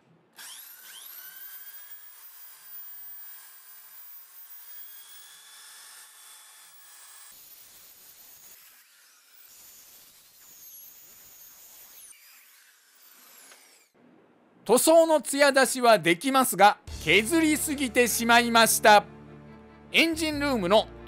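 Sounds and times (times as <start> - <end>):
electric drill motor whine: 0.4 - 14.0.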